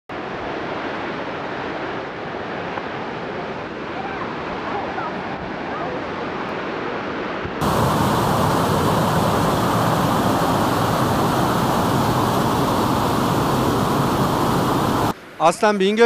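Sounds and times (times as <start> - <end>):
waterfall rushing: 7.6 - 15.2.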